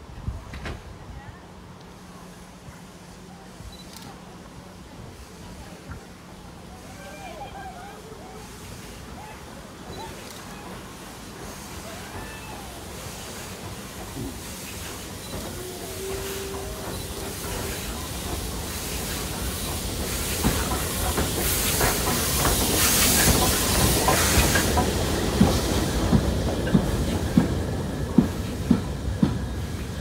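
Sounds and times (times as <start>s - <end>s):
steam locomotive hissing: 1.5s - 30.0s
train wheels clicking over rail joints: 9.7s - 30.0s.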